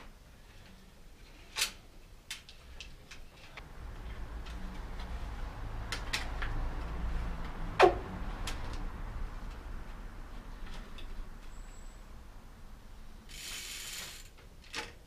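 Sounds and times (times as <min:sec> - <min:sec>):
low rumble: 0:03.6 - 0:11.4.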